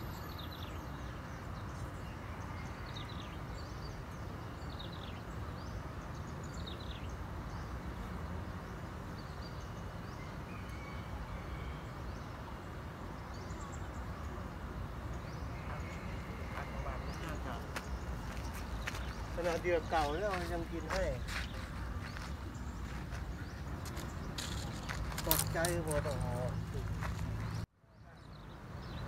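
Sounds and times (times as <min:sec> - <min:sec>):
bird chirping: 0:00.0 - 0:29.0
low rumble of wind: 0:00.0 - 0:29.0.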